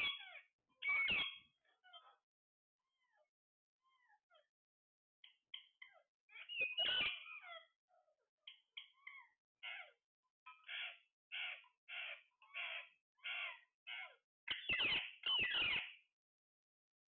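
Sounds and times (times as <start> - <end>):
parakeet screeches: 0.0 - 2.0, 9.1 - 10.0, 10.6 - 14.2
parakeets squawking: 0.0 - 2.0, 5.8 - 7.7, 8.5 - 15.9.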